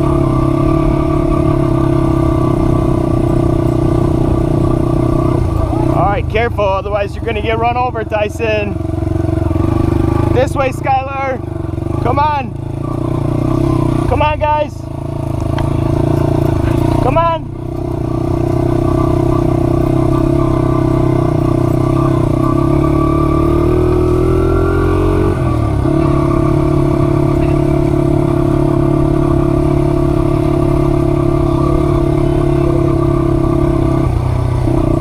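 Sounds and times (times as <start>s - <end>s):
small vehicle engine running: 0.0s - 35.0s.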